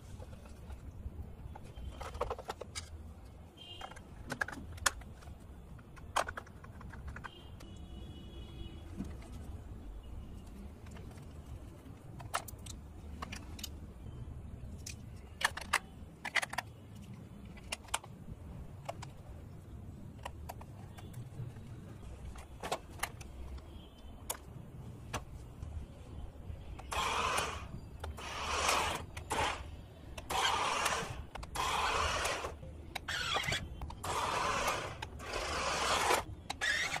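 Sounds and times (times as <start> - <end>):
plastic clicks: 0.2 - 7.8, 10.4 - 13.9, 14.6 - 25.8, 26.7 - 37.0
toy car motor rushing: 26.8 - 37.0.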